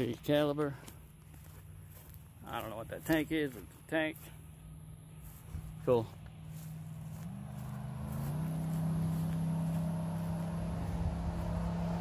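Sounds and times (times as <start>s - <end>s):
truck engine revving: 6.6s - 12.0s.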